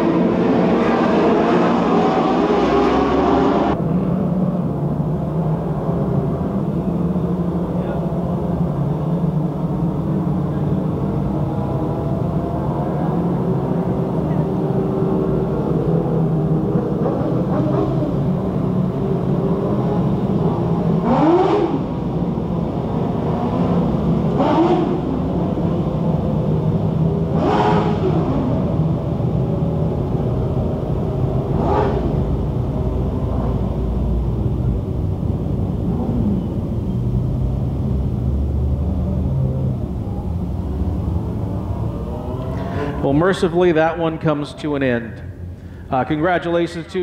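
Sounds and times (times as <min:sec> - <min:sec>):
race car revving past: 0:00.0 - 0:03.8, 0:10.4 - 0:25.7, 0:26.9 - 0:29.0, 0:30.0 - 0:34.7
race car engines rumbling: 0:00.0 - 0:47.0.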